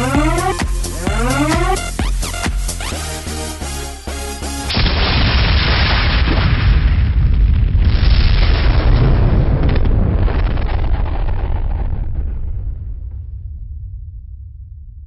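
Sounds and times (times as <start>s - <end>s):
dance music: 0.0s - 4.7s
explosion blast and low rumble: 4.7s - 15.0s.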